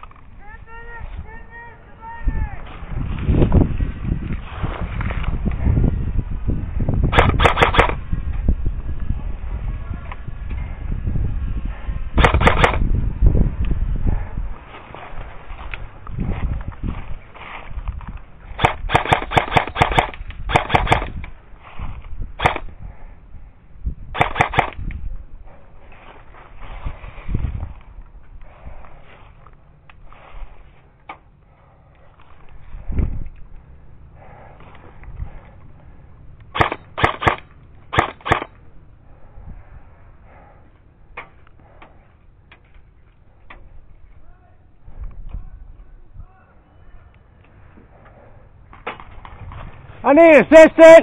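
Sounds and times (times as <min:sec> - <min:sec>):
airsoft rifle firing bursts: 0:07.1 - 0:08.0, 0:12.2 - 0:12.8, 0:18.6 - 0:21.2, 0:24.2 - 0:24.8, 0:36.6 - 0:38.6.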